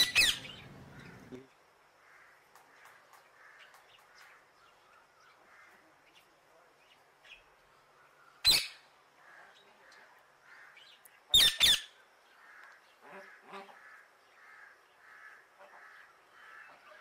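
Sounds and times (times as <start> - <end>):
parrot squawking: 0.0 - 1.3
faint bird chirping: 0.0 - 17.0.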